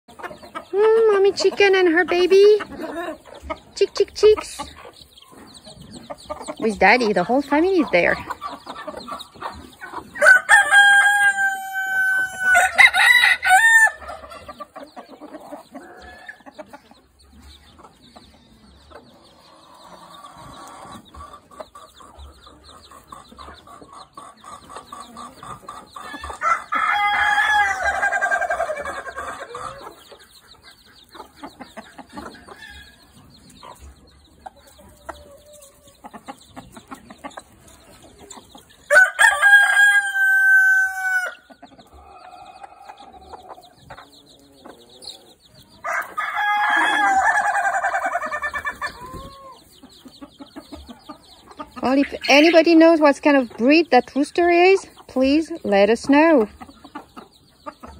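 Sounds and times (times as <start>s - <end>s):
hen clucking: 0.1s - 57.9s
rooster crowing: 10.2s - 14.2s, 26.4s - 29.7s, 38.9s - 41.5s, 45.8s - 48.6s.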